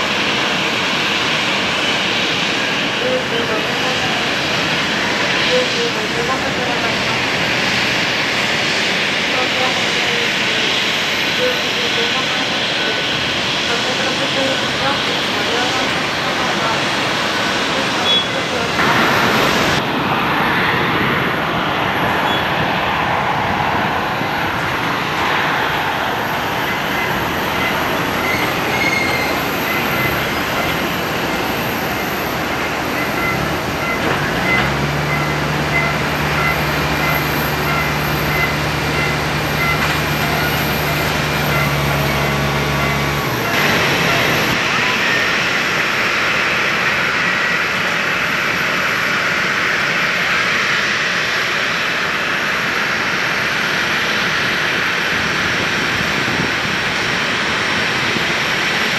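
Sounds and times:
jet engines rushing: 0:00.0 - 0:58.9.

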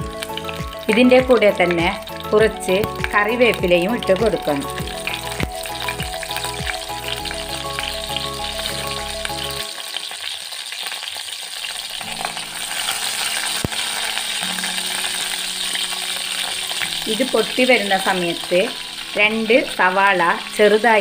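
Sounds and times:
spices sizzling in oil: 0:00.0 - 0:21.0.

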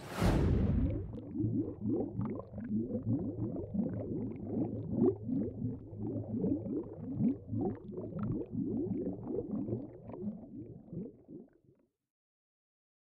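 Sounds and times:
low hum: 0:00.0 - 0:01.6
bubbly blips: 0:00.3 - 0:11.5.

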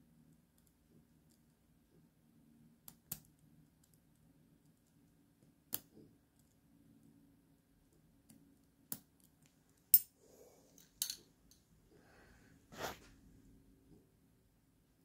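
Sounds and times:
small metal clicks and taps: 0:02.8 - 0:06.6, 0:07.9 - 0:10.1.

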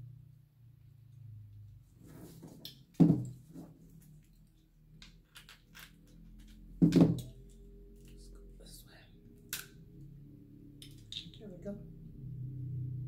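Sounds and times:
shells cracking and clicking: 0:09.5 - 0:09.8.

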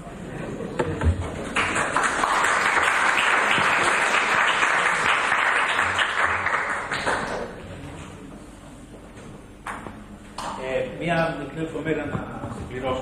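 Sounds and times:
audience applauding in a hall: 0:01.4 - 0:07.6.

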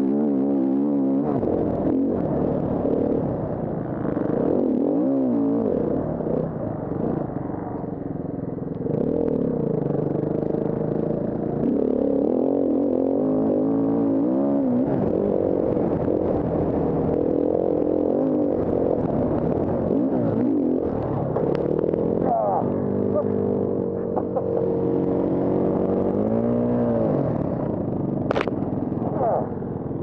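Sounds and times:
dirt bike engine revving: 0:08.9 - 0:27.5.

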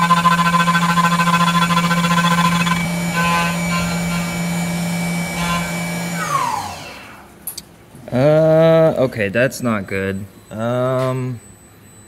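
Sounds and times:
milling machine cutting metal: 0:00.0 - 0:07.2
spindle winding down: 0:00.0 - 0:07.3.

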